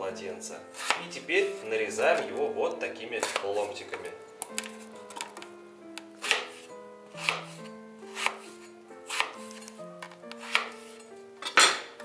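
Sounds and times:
knife slicing onto cutting board: 0.8 - 1.6, 3.2 - 3.7, 6.2 - 11.0.

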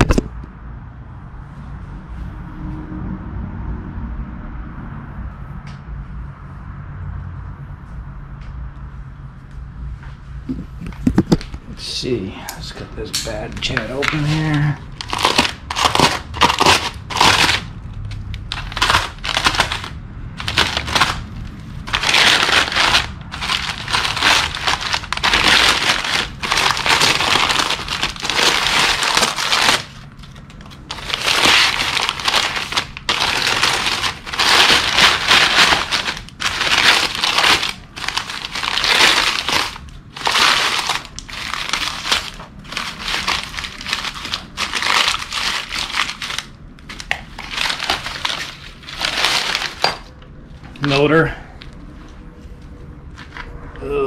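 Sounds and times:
packing paper crumpling: 13.3 - 50.1.

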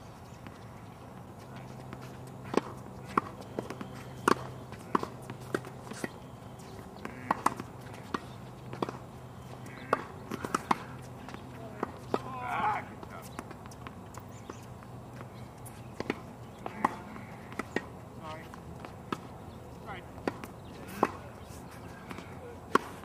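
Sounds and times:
tennis balls struck and bouncing: 0.4 - 23.0.

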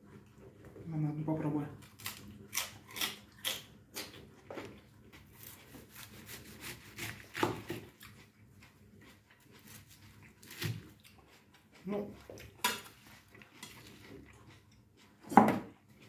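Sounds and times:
knife chopping cabbage on board: 5.4 - 7.9, 10.4 - 10.9, 15.3 - 15.7.

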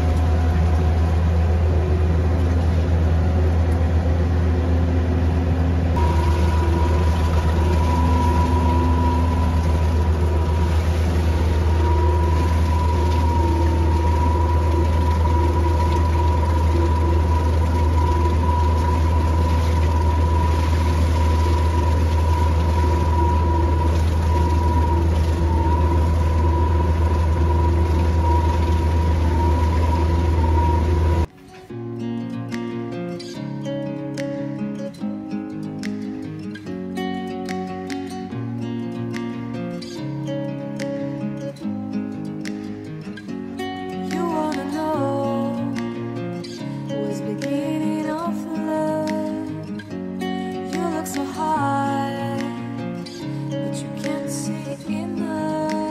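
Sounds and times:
work vehicle engine droning: 0.0 - 31.4
high whine: 0.0 - 55.9.

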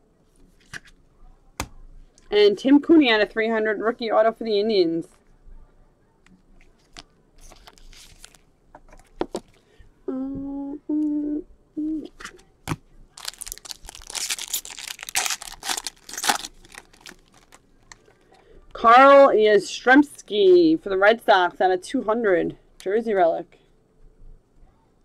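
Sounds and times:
wrapper tearing and crinkling: 7.5 - 8.4, 13.1 - 17.9
person humming: 10.0 - 12.2.

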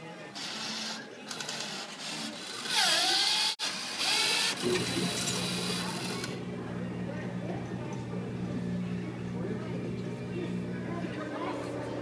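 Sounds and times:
mechanical whirring: 0.4 - 6.5
motor hum: 2.7 - 12.0.

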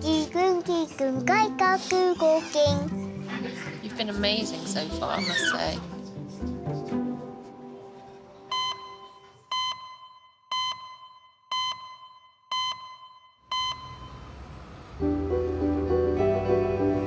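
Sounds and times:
music: 0.0 - 9.2, 15.0 - 17.0
short electronic beeps: 8.5 - 14.3.

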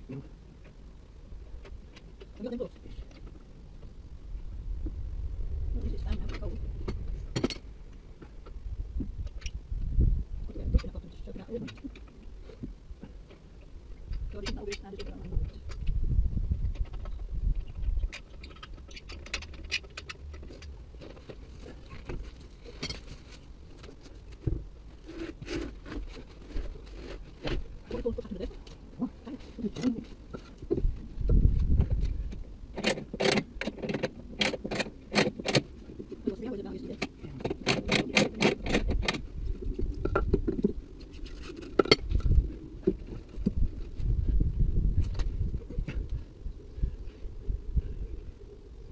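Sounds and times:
scissor jack clicks and scrapes: 32.8 - 35.7, 37.5 - 39.2.

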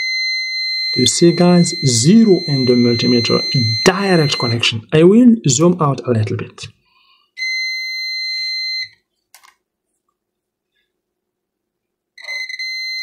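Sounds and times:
multimeter continuity beep: 0.0 - 4.8, 12.2 - 13.0.

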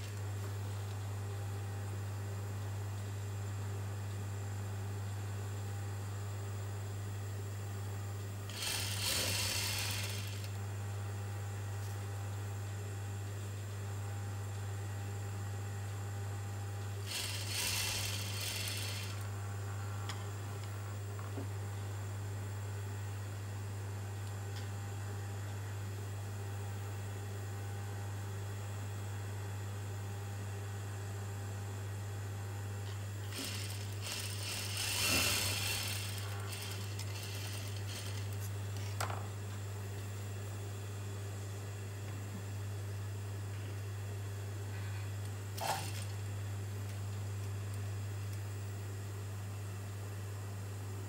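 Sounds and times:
steady low hum: 0.0 - 51.0
sewing machine stitching: 8.5 - 10.5, 17.0 - 19.2, 33.3 - 38.3.

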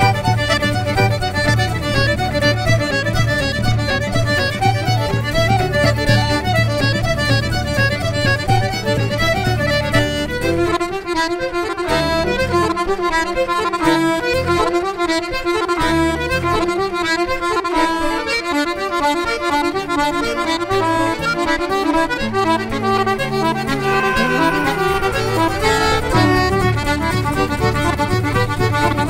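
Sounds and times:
accordion melody: 0.0 - 29.0
fiddle: 0.0 - 29.0
bass line: 23.6 - 27.7.

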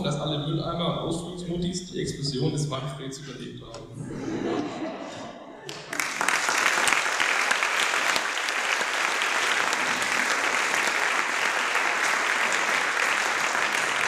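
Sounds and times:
large audience applauding: 5.6 - 14.0.

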